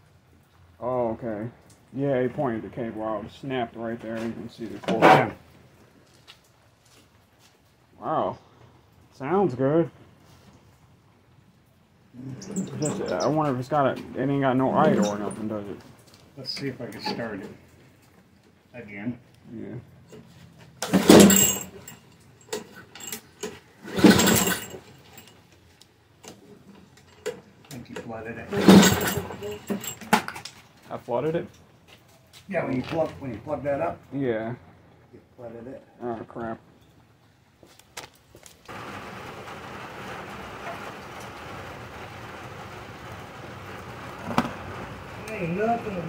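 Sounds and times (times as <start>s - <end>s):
engine turning over: 23.8s - 25.3s, 28.5s - 30.0s, 38.6s - 45.7s.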